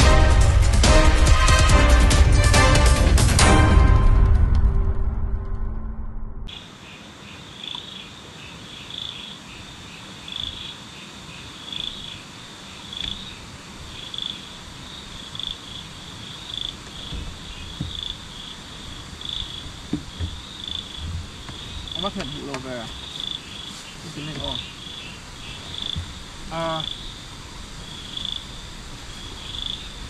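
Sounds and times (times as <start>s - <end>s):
music: 0.0s - 6.5s
insects chirping: 6.5s - 30.0s
steady high hiss: 6.5s - 30.0s.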